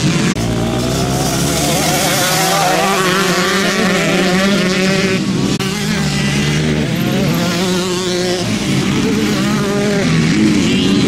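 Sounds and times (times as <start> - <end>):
dirt bike engines revving: 0.0 - 11.0.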